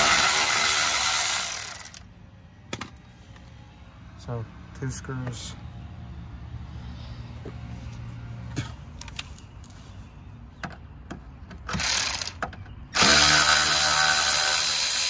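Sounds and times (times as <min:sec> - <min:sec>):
power driver whirring: 0:11.7 - 0:15.0.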